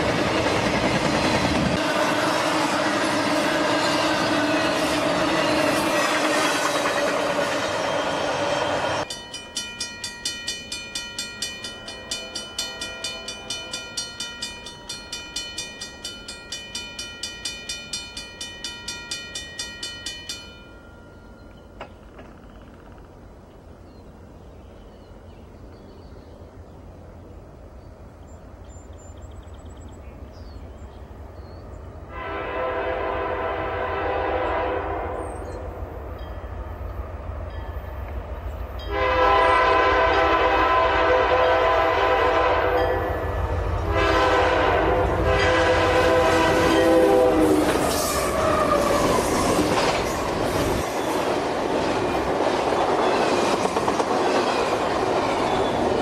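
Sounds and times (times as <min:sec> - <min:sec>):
wheels clattering on rails: 0:00.0 - 0:02.0, 0:09.0 - 0:23.2, 0:46.3 - 0:56.0
diesel locomotive engines rumbling: 0:00.0 - 0:56.0
train air horn blasts: 0:01.7 - 0:09.0, 0:32.1 - 0:35.6, 0:38.8 - 0:50.2.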